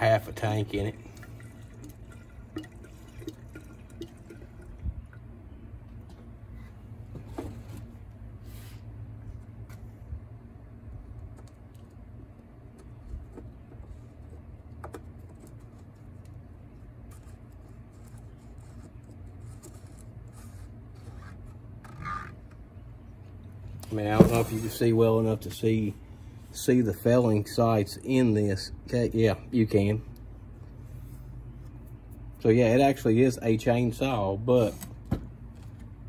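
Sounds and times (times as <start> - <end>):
steady low hum: 0.0 - 36.0
gasoline pouring into tank: 0.4 - 5.2.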